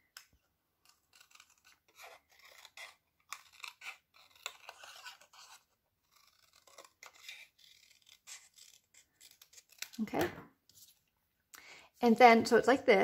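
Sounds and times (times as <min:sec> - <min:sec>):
paper snips cutting paper: 0:00.8 - 0:10.3.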